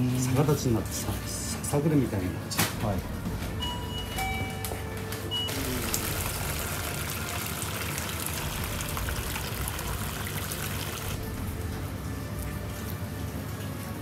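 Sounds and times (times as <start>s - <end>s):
liquid pouring through strainer: 5.5s - 11.4s.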